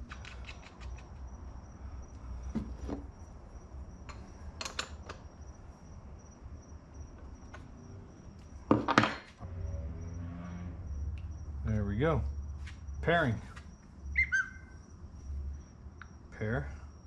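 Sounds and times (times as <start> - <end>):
clicks and rustles of wires: 0.0 - 1.4
cricket trill: 0.0 - 17.0
low hum: 9.4 - 13.1.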